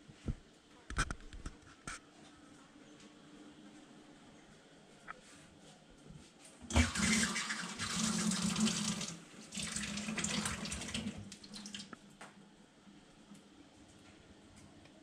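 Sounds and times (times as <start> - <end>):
water running and splashing: 6.7 - 11.9.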